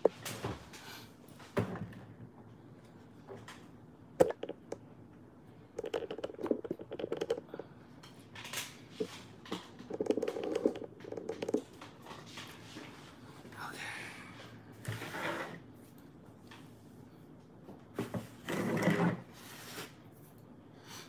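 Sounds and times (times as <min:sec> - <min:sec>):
rapid tapping and clicking: 0:05.8 - 0:07.6, 0:09.5 - 0:11.9.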